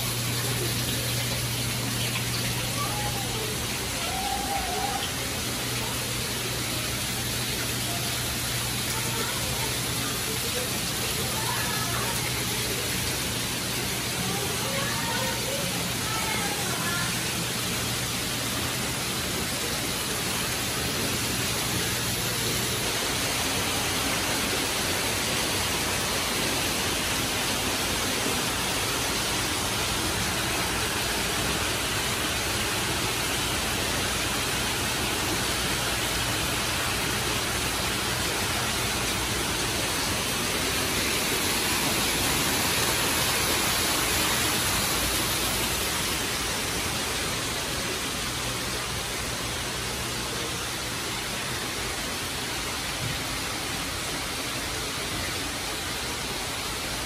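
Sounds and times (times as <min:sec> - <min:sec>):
small waterfall rushing: 0:00.0 - 0:57.0.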